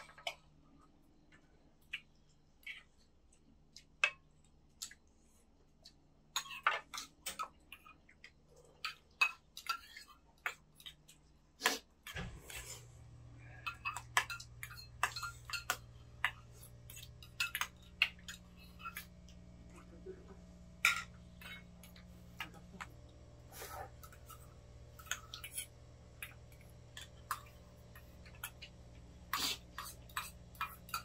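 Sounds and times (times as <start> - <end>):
low steady hum: 0.0 - 31.0
utensils clinking against bowls: 13.6 - 19.1, 20.8 - 22.6, 29.3 - 31.0.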